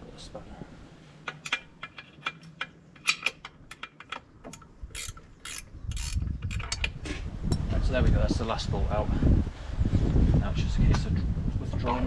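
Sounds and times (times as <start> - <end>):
hand tool metallic clicks: 1.3 - 7.0.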